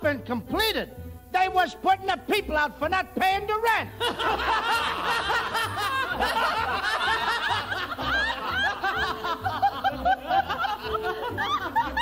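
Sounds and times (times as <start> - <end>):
woman laughing hysterically: 4.0 - 12.0.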